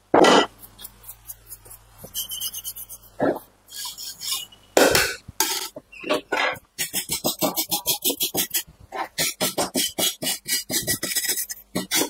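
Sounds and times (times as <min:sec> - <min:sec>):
scrubbing and scraping on metal: 0:00.4 - 0:04.6.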